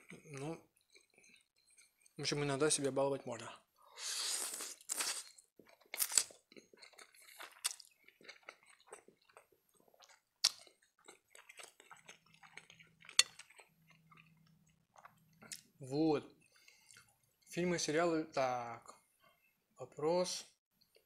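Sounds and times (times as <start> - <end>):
wet chewing: 0.0 - 2.2, 4.4 - 17.4
slurping spaghetti: 3.8 - 14.3.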